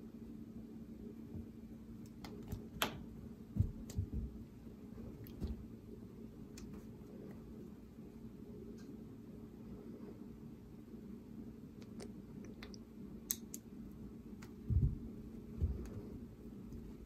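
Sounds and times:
low room hum: 0.0s - 17.0s
cat paws thumping on carpet: 3.5s - 4.5s, 14.6s - 17.0s.

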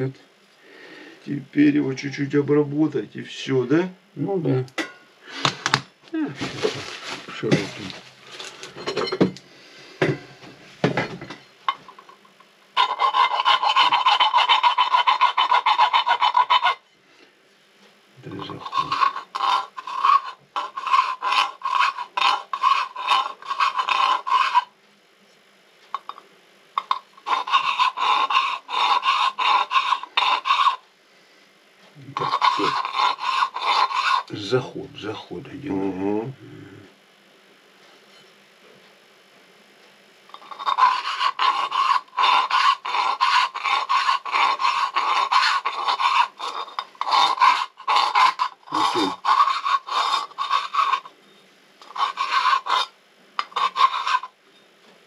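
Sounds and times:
hand file on metal rim: 12.8s - 16.8s, 18.3s - 24.7s, 26.8s - 30.8s, 32.2s - 34.6s, 40.3s - 51.1s, 51.8s - 54.3s.

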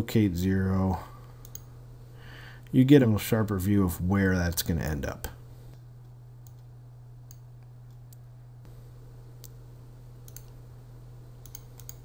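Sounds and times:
steady low hum: 0.0s - 12.0s
computer mouse clicking: 1.4s - 1.7s, 6.4s - 6.7s, 10.2s - 10.6s, 11.4s - 12.0s.

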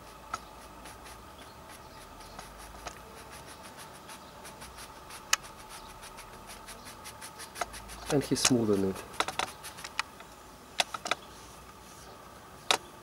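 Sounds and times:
fingertips rubbing on canvas: 0.0s - 10.0s.

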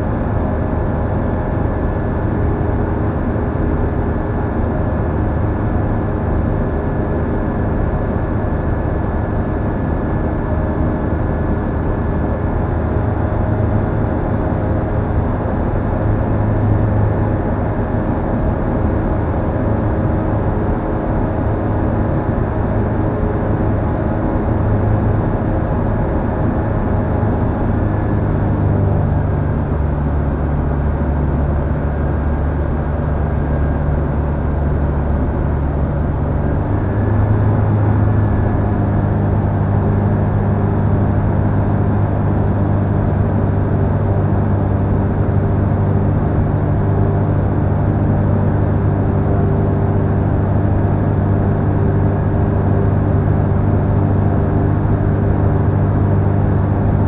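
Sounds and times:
light aircraft engine droning: 0.0s - 57.0s.

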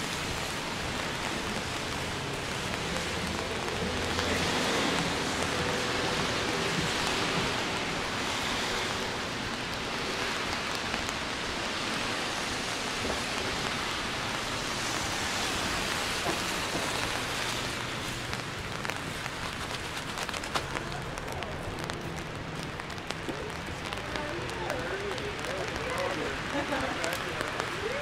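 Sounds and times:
rain falling steadily: 0.0s - 28.0s.

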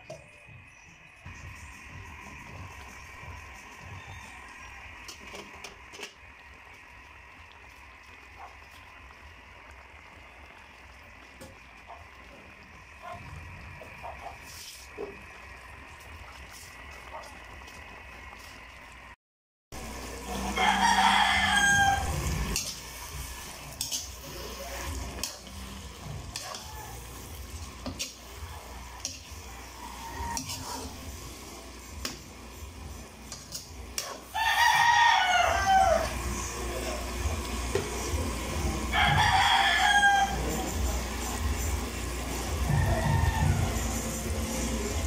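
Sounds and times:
stew simmering: 0.0s - 19.2s, 19.8s - 45.0s
rooster crowing: 3.8s - 4.9s, 20.2s - 22.6s, 28.5s - 30.7s, 34.3s - 36.5s, 38.9s - 40.7s, 42.4s - 44.2s
metal spatula scraping a wok: 22.1s - 32.2s.

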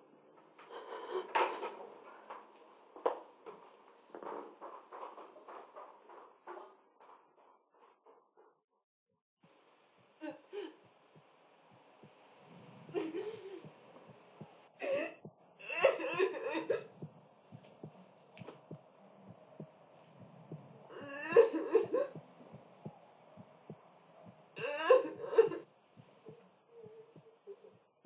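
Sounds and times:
woman sobbing: 12.9s - 13.7s, 14.8s - 17.1s, 20.9s - 22.2s, 24.6s - 25.6s.

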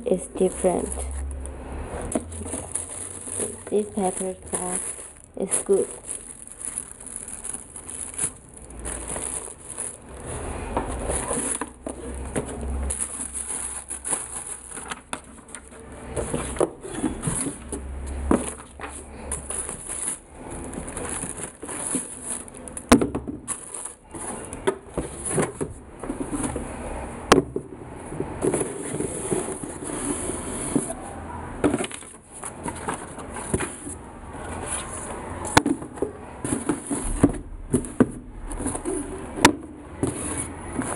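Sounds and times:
shoe boxes being handled: 0.0s - 40.9s
tissue paper rustling: 2.0s - 17.7s, 18.3s - 22.9s.

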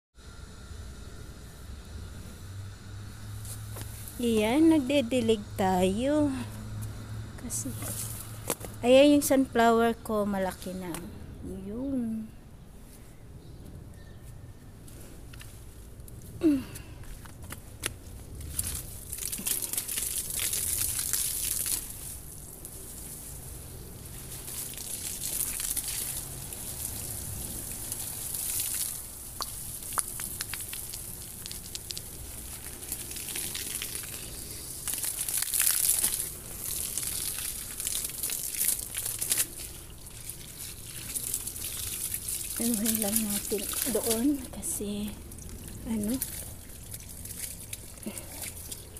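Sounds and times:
hose water spraying on leaves: 2.4s - 6.5s, 7.4s - 9.3s, 18.4s - 48.9s.

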